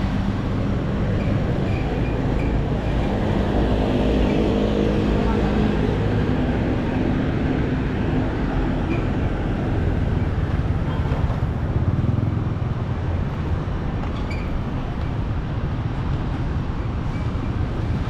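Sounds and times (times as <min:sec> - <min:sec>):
street traffic rumble: 0:00.0 - 0:18.0.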